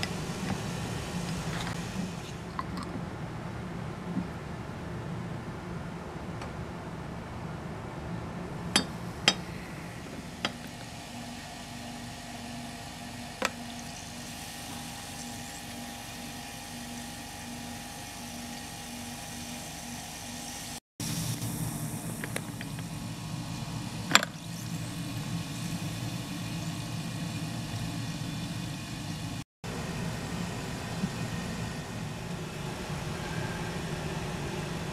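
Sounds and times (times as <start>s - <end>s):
low hum: 0.0s - 34.9s
soda pouring and fizzing: 9.4s - 29.4s.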